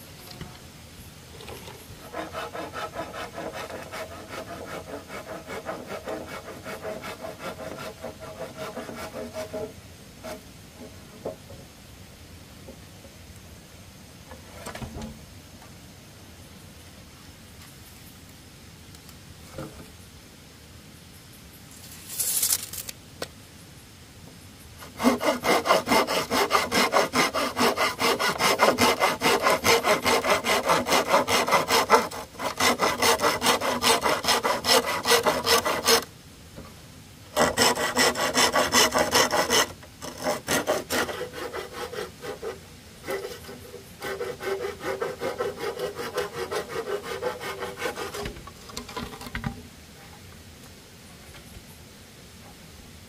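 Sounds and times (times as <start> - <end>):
hand saw cutting bamboo: 2.0 - 10.4, 24.8 - 36.1, 37.3 - 48.4.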